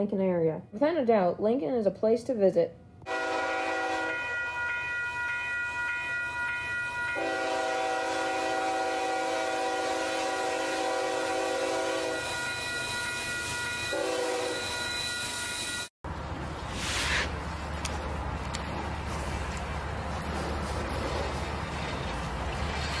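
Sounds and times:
locomotive air horn: 0:03.0 - 0:15.9
train rumbling past: 0:03.0 - 0:23.0.

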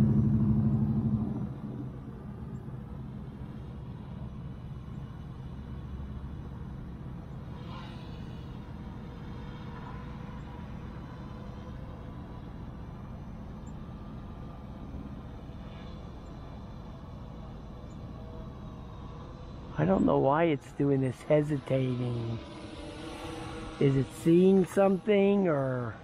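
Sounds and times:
low rumble: 0:00.0 - 0:02.5
drone propellers humming: 0:00.0 - 0:26.0.

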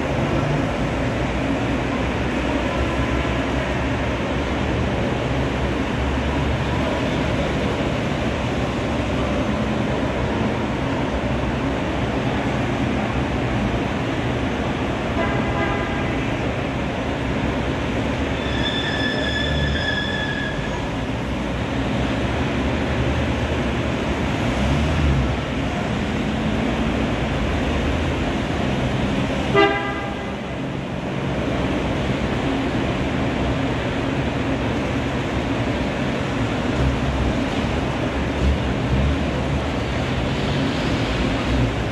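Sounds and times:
cars driving past: 0:00.0 - 0:41.9
car horns tooting: 0:29.5 - 0:30.4.

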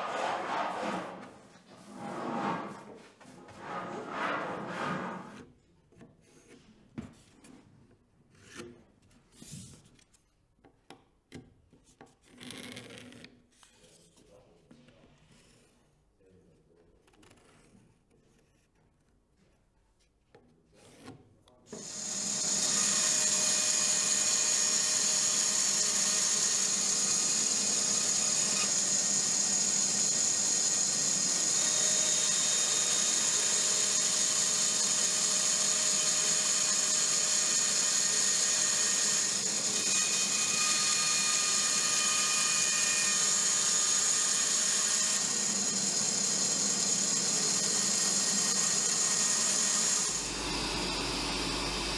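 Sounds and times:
bandsaw cutting wood: 0:21.7 - 0:51.9.

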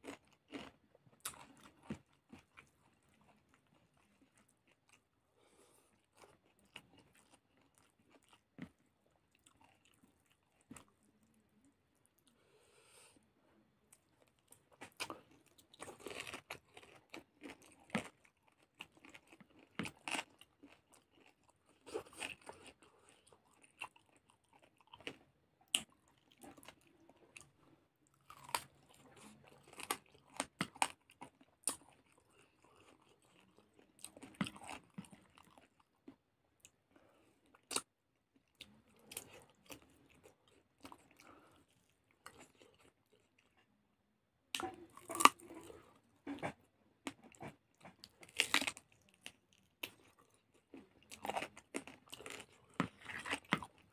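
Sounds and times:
chewing and biting: 0:00.0 - 0:05.1, 0:14.0 - 0:36.8, 0:44.5 - 0:53.9.

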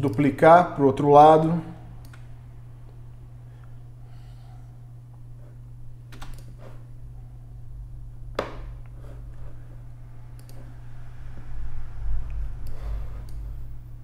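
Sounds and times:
steady low hum: 0:00.0 - 0:14.0
low rumble: 0:09.3 - 0:14.0
computer mouse clicks: 0:10.3 - 0:10.7, 0:12.6 - 0:13.4.

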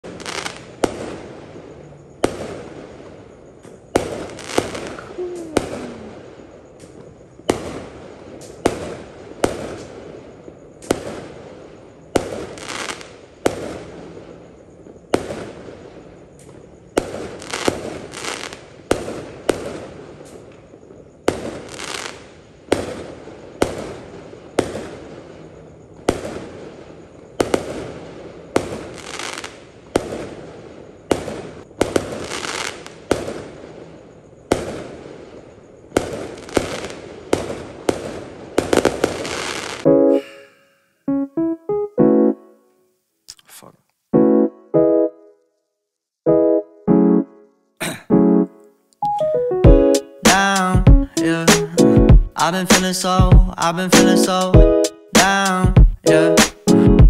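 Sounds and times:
firework shells bursting: 0:03.7 - 0:06.2, 0:50.2 - 0:50.7.

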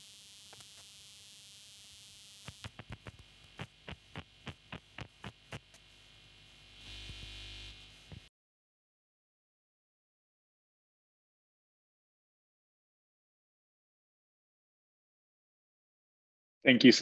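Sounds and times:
electrical hum and hiss: 0:00.0 - 0:08.3
loud buzz: 0:00.0 - 0:08.3.

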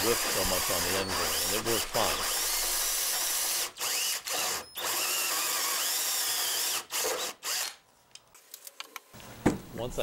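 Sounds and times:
hand drill grinding into wood: 0:00.0 - 0:07.8.

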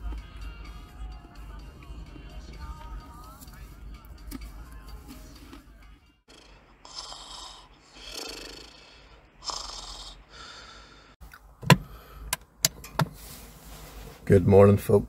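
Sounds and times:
person snoring: 0:06.3 - 0:11.1.

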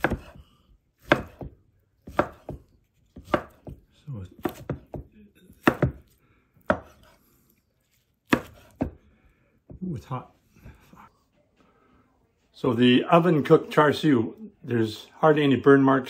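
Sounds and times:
knife slicing meat: 0:00.0 - 0:03.8, 0:04.4 - 0:07.2, 0:07.8 - 0:09.0.

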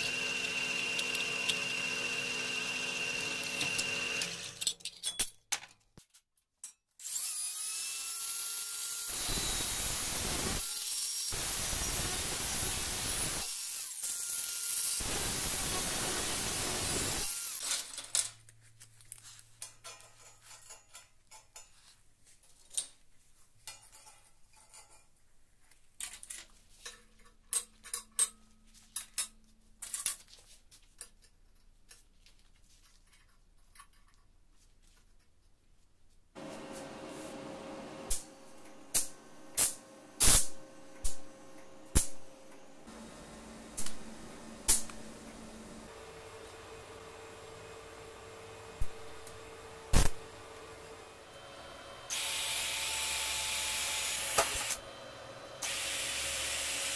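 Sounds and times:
power tool working into metal: 0:00.0 - 0:04.6, 0:07.0 - 0:17.7, 0:38.1 - 0:56.9.

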